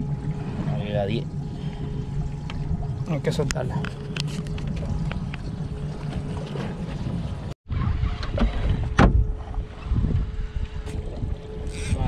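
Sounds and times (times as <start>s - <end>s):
faint steady hum: 0.0s - 6.4s
wind buffeting microphone: 0.0s - 12.0s.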